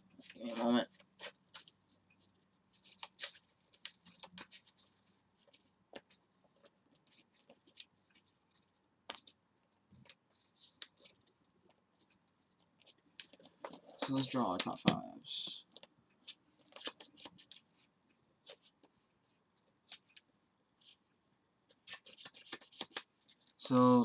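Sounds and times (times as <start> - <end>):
cards being shuffled: 0.2 - 1.8, 2.7 - 9.4, 10.0 - 11.4, 12.0 - 15.0, 15.7 - 19.0, 19.6 - 20.2, 21.7 - 23.5.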